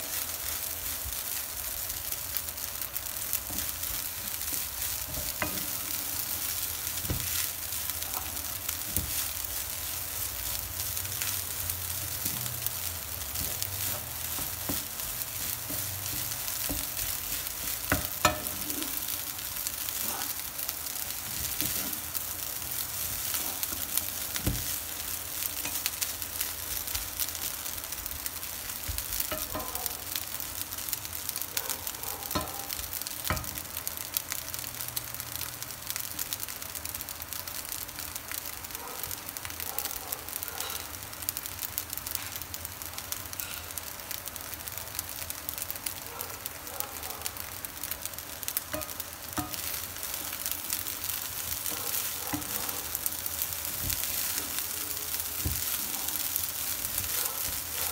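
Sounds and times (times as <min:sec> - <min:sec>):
spatula stirring and scraping: 0:00.0 - 0:27.5, 0:48.6 - 0:57.9
food sizzling in frying pan: 0:00.0 - 0:57.9.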